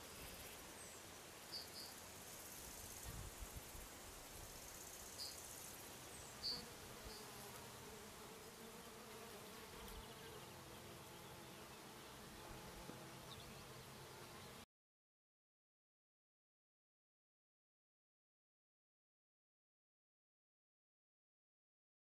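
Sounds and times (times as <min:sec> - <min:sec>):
flying insect buzzing: 0:01.7 - 0:14.6.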